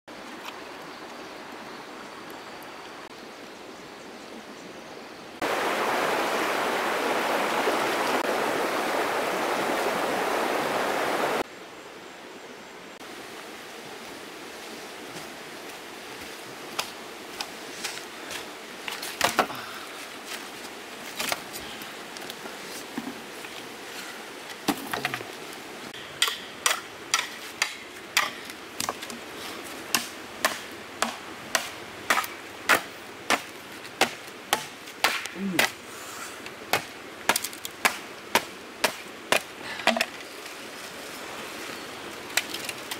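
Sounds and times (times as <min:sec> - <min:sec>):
shallow stream flowing: 0:00.1 - 0:03.8, 0:05.4 - 0:11.6, 0:12.2 - 0:42.9
machete chopping bamboo: 0:26.0 - 0:29.1, 0:29.9 - 0:35.8, 0:36.7 - 0:40.1.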